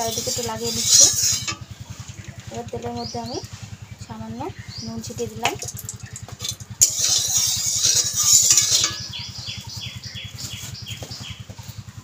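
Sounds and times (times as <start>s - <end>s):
metal spatula scraping pan: 0.0s - 1.8s, 6.4s - 9.1s
steady low hum: 0.0s - 12.0s
bird chirping: 0.9s - 6.4s, 7.0s - 11.8s.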